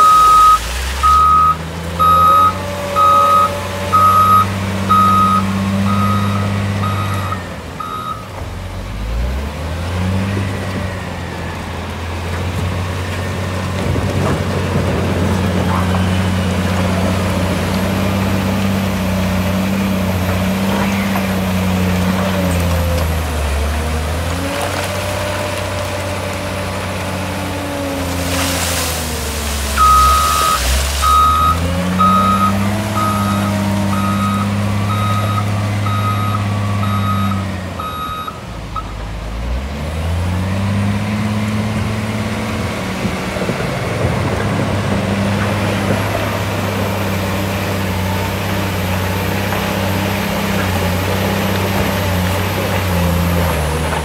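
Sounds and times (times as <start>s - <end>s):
reversing alarm beeps: 0.0s - 8.3s, 29.8s - 38.9s
wheel loader diesel engine revving: 0.0s - 54.0s.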